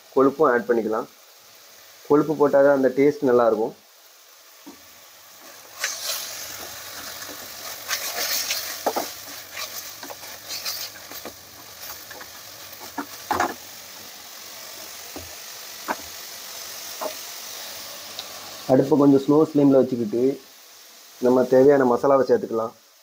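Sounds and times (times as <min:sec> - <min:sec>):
meat sizzling in pan: 0:00.0 - 0:23.0
spatula scraping and knocking pan: 0:04.6 - 0:13.7, 0:14.7 - 0:16.2, 0:16.9 - 0:17.3.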